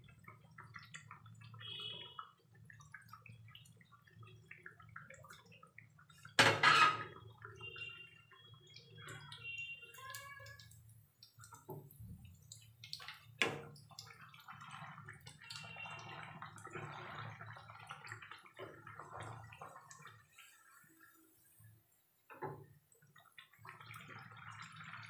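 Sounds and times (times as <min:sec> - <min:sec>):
oil sizzling and bubbling: 0:00.0 - 0:25.0
steel spoon scraping a pan: 0:06.4 - 0:07.1.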